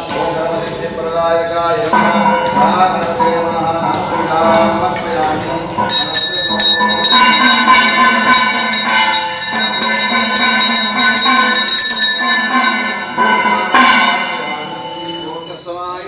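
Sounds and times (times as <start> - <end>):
hand bell ringing rapidly: 5.4 - 16.0.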